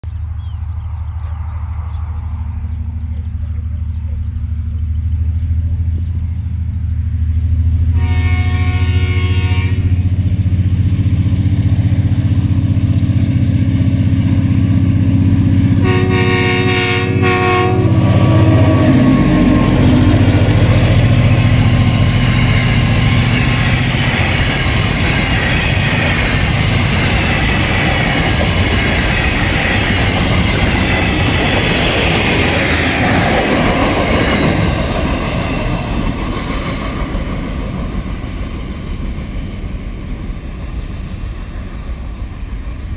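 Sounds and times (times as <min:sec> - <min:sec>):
locomotive engine drone: 0:00.0 - 0:42.9
multi-tone train horn: 0:07.9 - 0:10.2, 0:15.8 - 0:20.5
train wheels clattering: 0:19.1 - 0:39.8.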